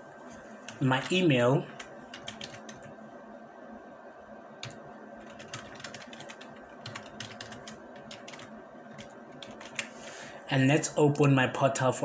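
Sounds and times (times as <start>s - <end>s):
computer keyboard typing: 0.7s - 2.9s, 4.6s - 9.9s.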